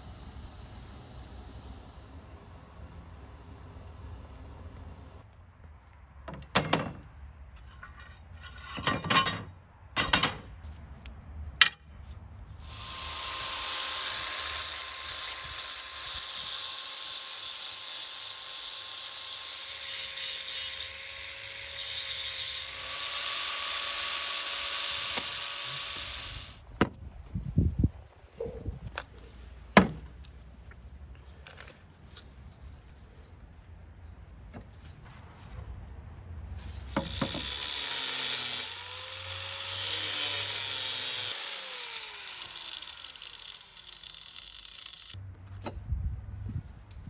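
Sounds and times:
knocks and scrapes: 5.7 - 12.2
angle grinder cutting steel: 12.6 - 26.6, 36.9 - 45.2.

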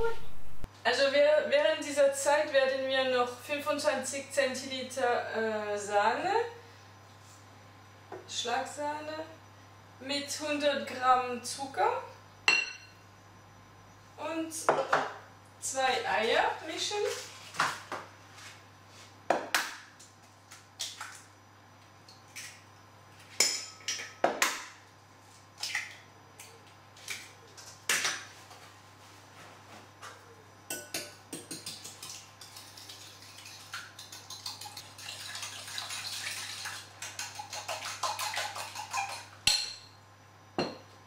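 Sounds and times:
fork whisking in glass bowl: 31.5 - 39.4.

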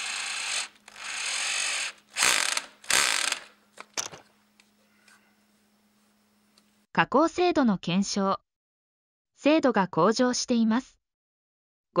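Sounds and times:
screwdriver turning with ratchet clicks: 0.0 - 3.5.

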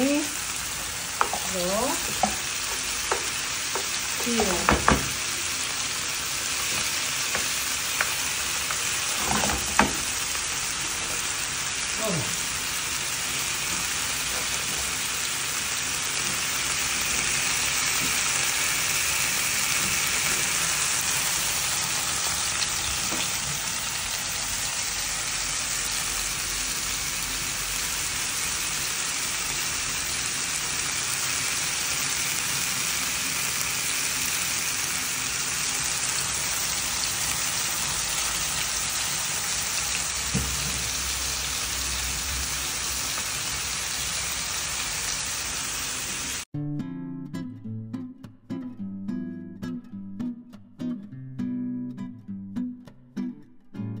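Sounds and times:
oil sizzling in frying pans: 0.0 - 46.5.

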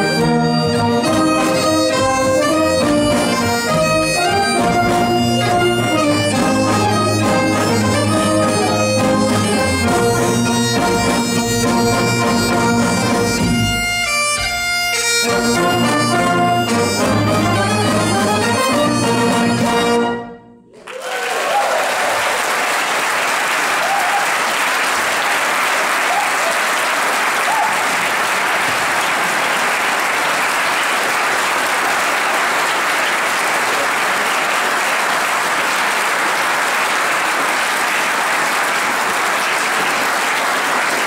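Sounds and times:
audience applause: 20.8 - 41.0.

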